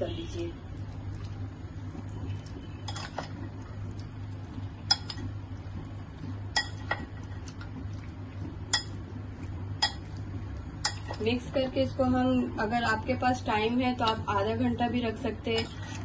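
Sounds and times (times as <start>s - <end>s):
spoon stirring in marinade: 0.7s - 11.7s.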